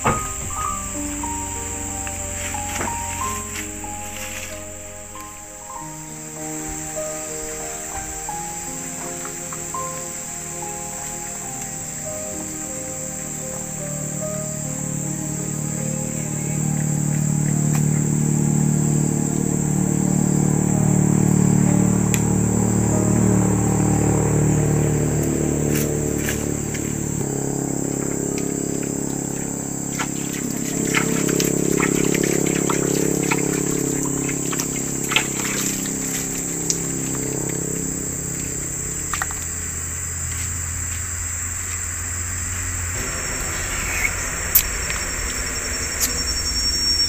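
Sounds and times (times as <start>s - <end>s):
background music with low notes: 0.0s - 47.0s
crickets droning: 0.0s - 47.0s.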